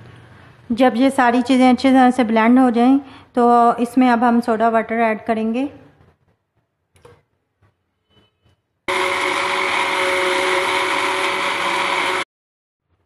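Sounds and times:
blender running: 8.9s - 12.3s.

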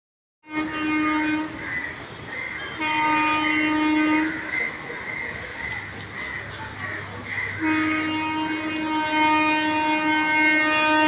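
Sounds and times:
train horn blasts: 0.4s - 1.8s, 2.6s - 4.7s, 7.5s - 11.0s.

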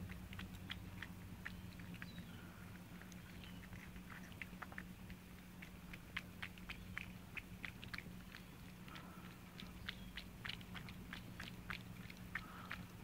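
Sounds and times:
cats chewing and lapping: 0.0s - 13.0s
faint low hum: 0.0s - 13.0s.

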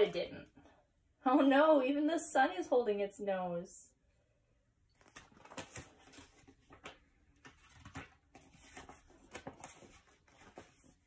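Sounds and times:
book pages turning: 4.9s - 11.0s.

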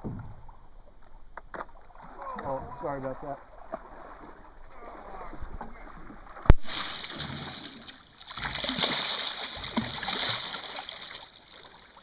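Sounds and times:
fish splashing water: 3.5s - 12.0s.

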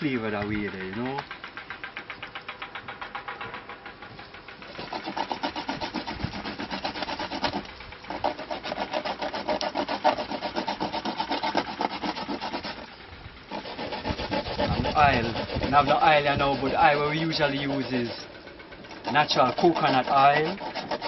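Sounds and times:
coconut scraping on metal grater: 4.6s - 21.0s.

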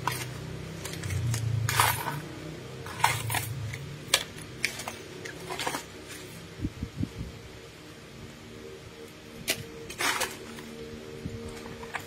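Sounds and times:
plastic packs rustling: 0.0s - 6.4s, 9.5s - 12.0s
low steady hum: 0.0s - 12.0s.

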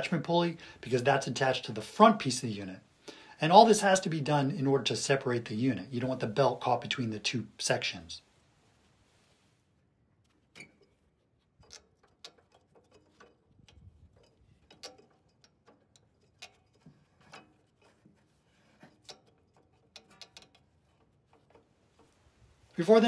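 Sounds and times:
belt and pulley clicks and taps: 10.2s - 22.2s.

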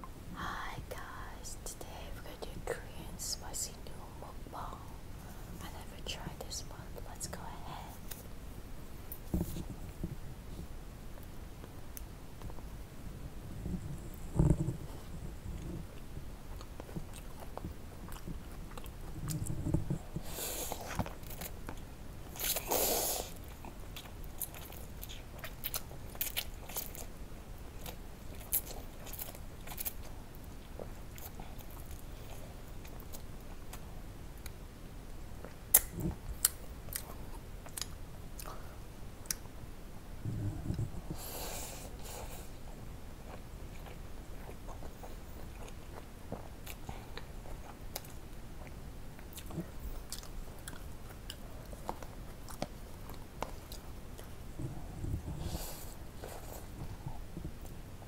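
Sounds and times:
chewing and crunching: 13.7s - 34.6s, 35.3s - 39.5s, 42.0s - 57.8s.

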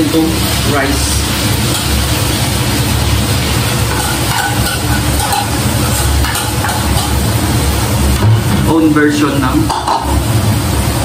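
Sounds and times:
rice sizzling in frying pan: 0.0s - 11.0s.

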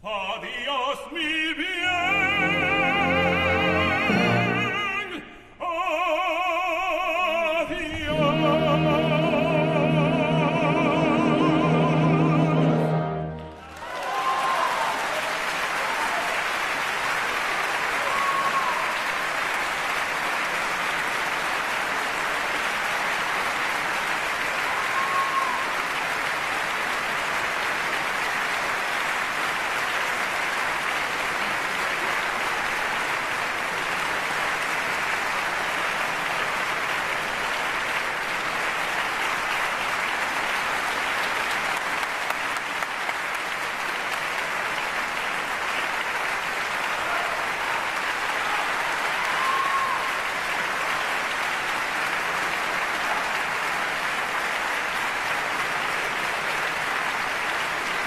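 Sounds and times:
audience applauding: 6.0s - 58.0s
cheering calls: 11.9s - 19.7s, 24.4s - 26.2s, 46.8s - 51.3s.

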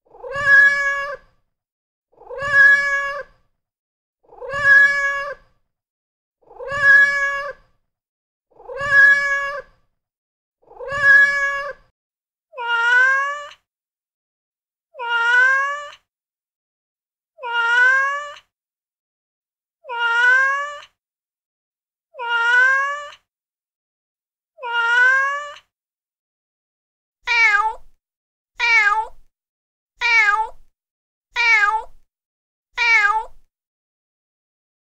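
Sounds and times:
recorded cat meows: 0.1s - 1.4s, 2.2s - 3.5s, 4.2s - 5.6s, 6.4s - 7.9s, 8.5s - 10.0s, 10.6s - 11.9s, 12.5s - 13.7s, 14.9s - 16.1s, 17.4s - 18.5s, 19.8s - 21.0s, 22.1s - 23.3s, 24.6s - 25.7s, 27.2s - 28.0s, 28.6s - 29.3s, 30.0s - 30.7s, 31.3s - 32.0s, 32.8s - 33.5s.

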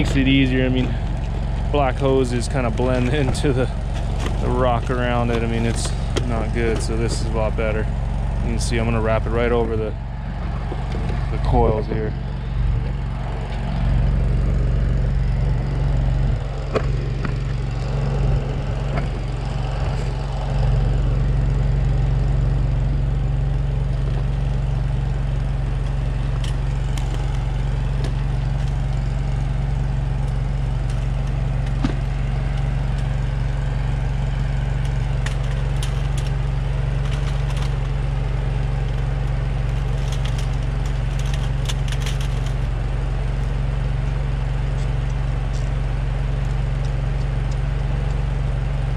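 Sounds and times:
scratchy plastic rustles: 0.0s - 9.8s, 25.7s - 42.8s
excavator engine idling: 0.0s - 48.9s
plastic hose wrap clicking: 38.8s - 42.6s.

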